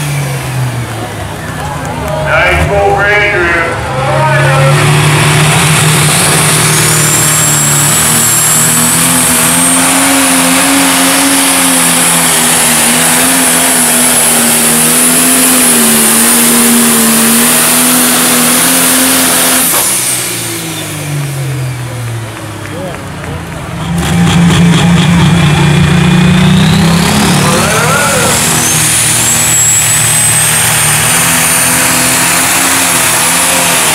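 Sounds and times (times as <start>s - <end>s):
diesel tractor engine at full load: 0.0s - 33.9s
high turbo whistle: 27.9s - 31.2s.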